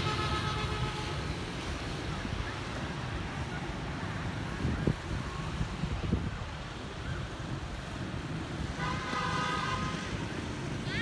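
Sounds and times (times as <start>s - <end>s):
distant road traffic: 0.0s - 11.0s
wind buffeting microphone: 1.2s - 9.1s.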